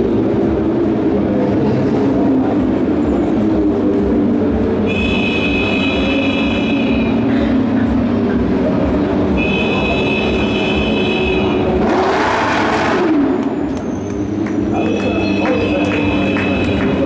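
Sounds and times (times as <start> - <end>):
race car engines droning: 0.0 - 17.0.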